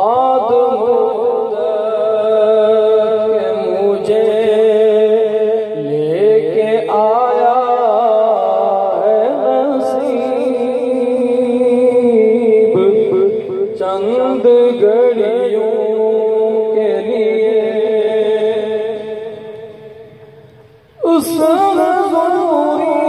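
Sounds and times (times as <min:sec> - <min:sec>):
solo voice chanting: 0:00.0 - 0:23.0.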